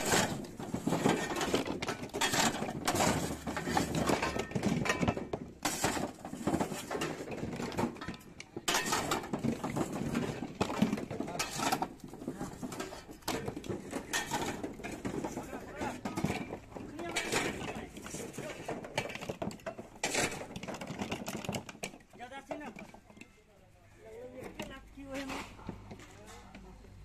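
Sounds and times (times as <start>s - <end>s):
coconuts tumbling and knocking together: 0.0s - 27.0s.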